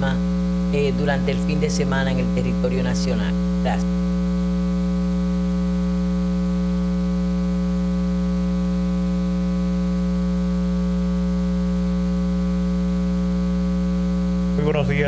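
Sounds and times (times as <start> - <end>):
person speaking: 0.0 - 4.0, 14.6 - 15.0
electrical mains hum: 0.0 - 15.0.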